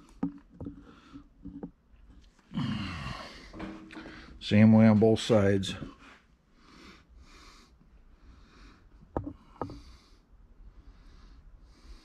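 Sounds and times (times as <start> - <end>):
person breathing close up: 6.5 - 12.0.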